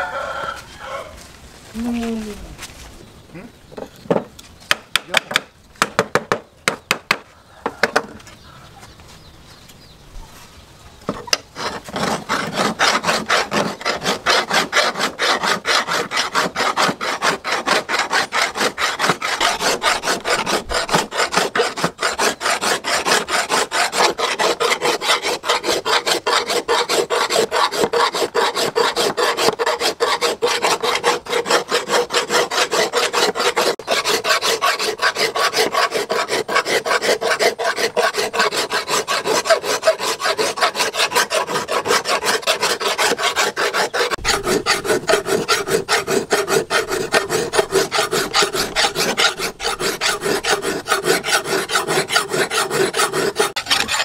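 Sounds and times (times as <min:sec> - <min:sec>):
hand file rasping on steel: 0:11.3 - 0:54.0.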